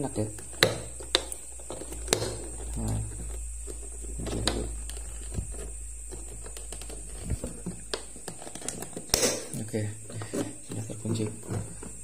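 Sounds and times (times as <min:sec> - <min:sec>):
steady low hum: 0:00.0 - 0:12.0
plastic case knocking: 0:00.2 - 0:03.4, 0:04.0 - 0:09.5.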